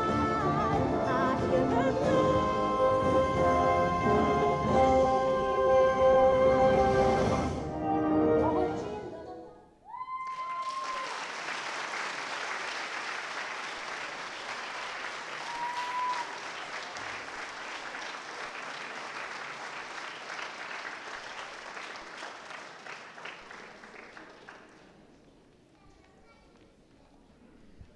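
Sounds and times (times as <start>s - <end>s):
audience applauding: 10.0s - 25.1s.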